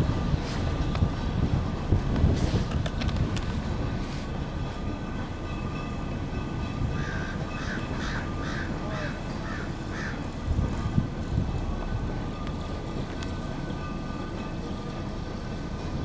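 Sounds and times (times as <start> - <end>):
tram wheels rumbling: 0.0 - 16.0
crow cawing: 7.0 - 10.2.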